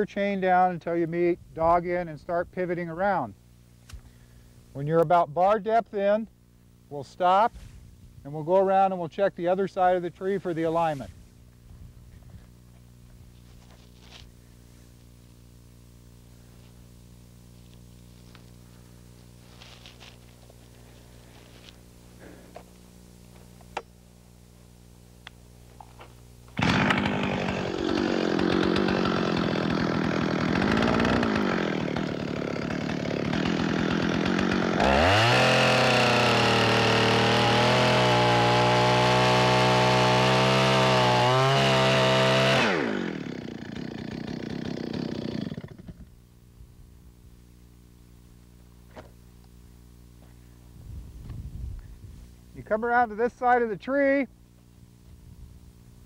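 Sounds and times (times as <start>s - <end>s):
chainsaw sawing a tree: 10.3s - 11.2s, 26.5s - 46.1s.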